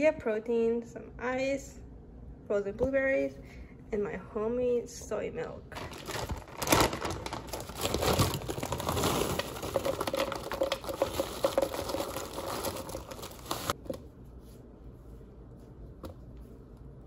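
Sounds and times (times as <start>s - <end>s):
plastic bag crinkling: 5.8s - 13.8s
frozen berries clicking into cup: 8.6s - 13.7s.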